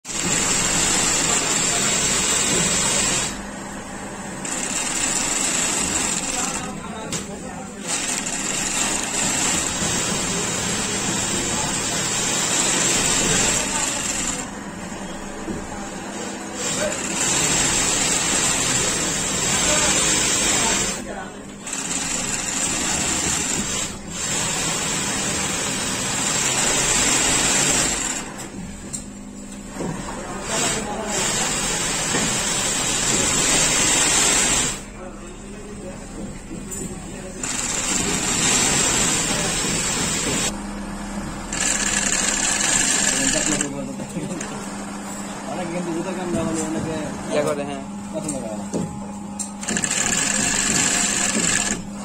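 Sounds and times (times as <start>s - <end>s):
sewing machine running: 0.0s - 7.1s, 7.7s - 14.7s, 16.2s - 28.5s, 30.4s - 34.9s, 37.3s - 40.6s, 41.4s - 44.9s, 49.6s - 52.0s.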